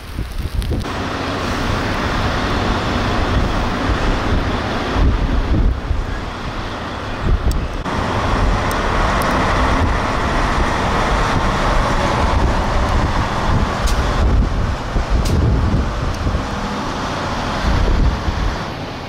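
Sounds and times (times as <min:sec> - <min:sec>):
loud steady hiss: 0:00.0 - 0:14.4
wind buffeting microphone: 0:00.0 - 0:18.8
highway traffic rumble: 0:00.0 - 0:19.0.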